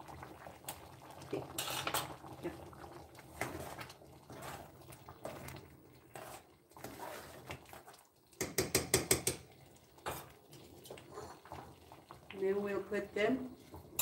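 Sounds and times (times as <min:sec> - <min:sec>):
spoon stirring in metal pot: 0:01.4 - 0:02.2, 0:03.3 - 0:11.7.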